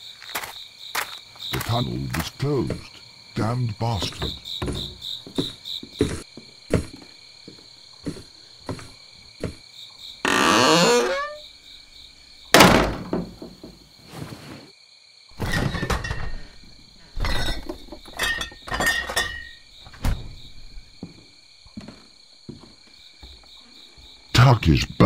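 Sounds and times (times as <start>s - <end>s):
knocking and clattering thuds: 1.5s - 9.6s, 12.5s - 13.9s, 15.4s - 21.2s
heavy thunk: 4.0s - 7.0s, 12.6s - 13.8s.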